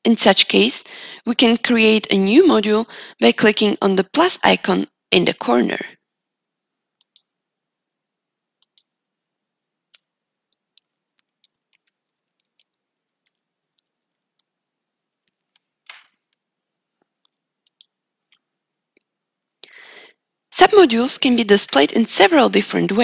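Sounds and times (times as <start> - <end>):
mouse clicks: 7.0 - 7.3, 8.6 - 9.0, 9.9 - 16.4, 17.2 - 19.1
computer keys clicking: 7.0 - 7.4, 8.6 - 9.0, 9.9 - 16.4, 17.2 - 19.1.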